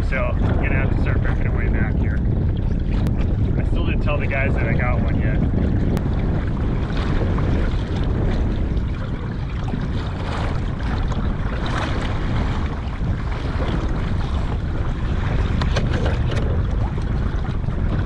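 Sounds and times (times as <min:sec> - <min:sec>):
water lapping against hull: 0:00.0 - 0:18.0
wind buffeting microphone: 0:00.0 - 0:18.0.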